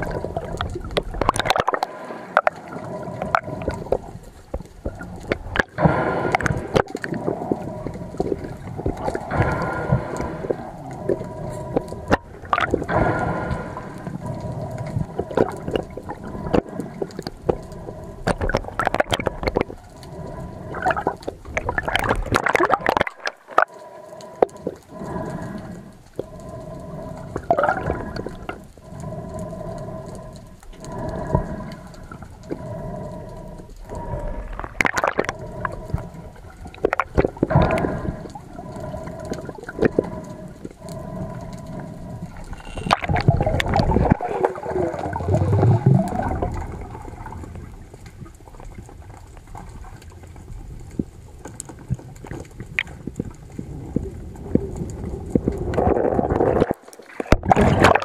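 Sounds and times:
water sloshing and gurgling: 0.0s - 58.0s
faint pulsing tone: 42.5s - 43.0s.

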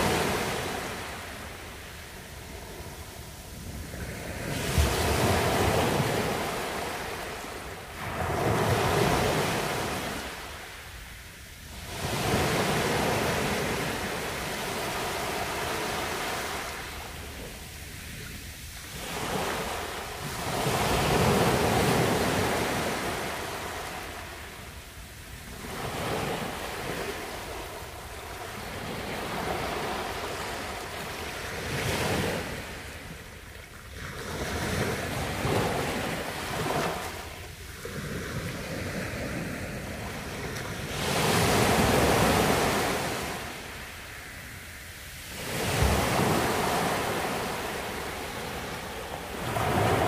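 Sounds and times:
sea waves washing over beach: 0.0s - 50.0s.

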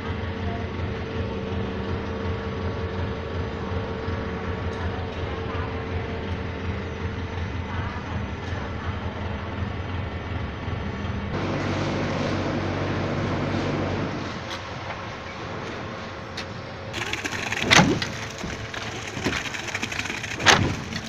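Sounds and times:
diesel engine running under load: 0.0s - 15.1s, 16.8s - 21.0s
concrete mixer pump running: 16.9s - 21.0s.

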